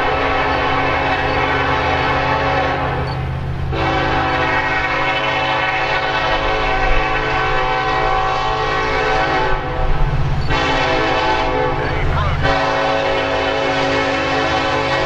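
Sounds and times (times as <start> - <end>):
locomotive horn blasts: 0.0 - 15.0
diesel engine rumble: 9.4 - 14.8.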